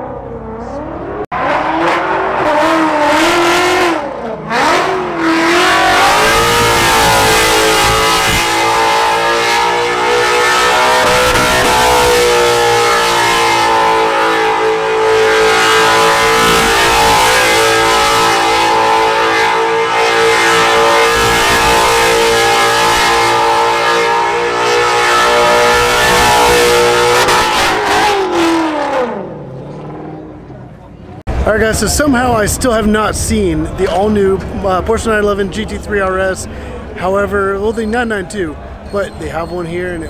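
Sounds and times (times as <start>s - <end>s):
car engine revving high: 0.0s - 30.6s.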